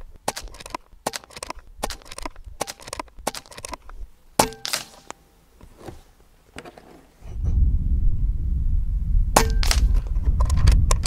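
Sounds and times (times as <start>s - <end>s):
air rifle shot: 4.4s - 5.1s, 9.4s - 11.0s.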